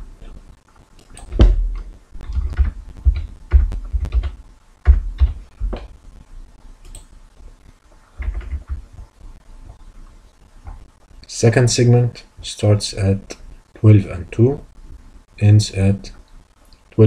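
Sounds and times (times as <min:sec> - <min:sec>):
keyboard typing clicks: 0:01.1 - 0:05.9, 0:06.8 - 0:07.1.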